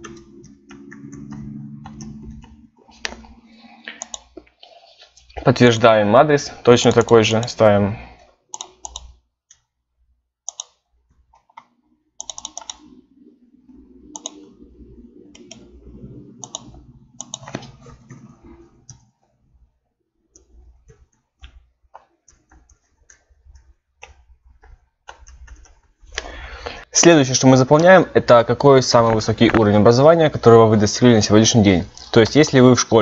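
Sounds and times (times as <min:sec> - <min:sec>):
mouse and keyboard clicks: 0:00.0 - 0:04.5, 0:08.5 - 0:09.7, 0:10.5 - 0:10.8, 0:11.4 - 0:13.0, 0:14.1 - 0:14.4, 0:16.4 - 0:18.3.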